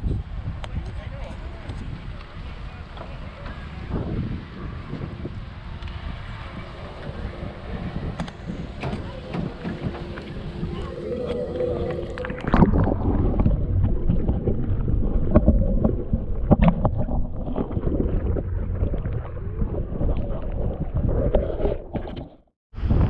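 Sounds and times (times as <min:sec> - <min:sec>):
low rumble: 0:03.3 - 0:21.9
knocks and scrapes on camera: 0:21.0 - 0:22.5.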